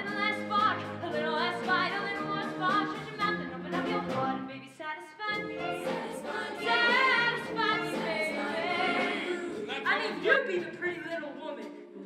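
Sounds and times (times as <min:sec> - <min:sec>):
instrumental accompaniment: 0:00.0 - 0:04.6, 0:05.3 - 0:12.0
voices singing: 0:05.3 - 0:10.7.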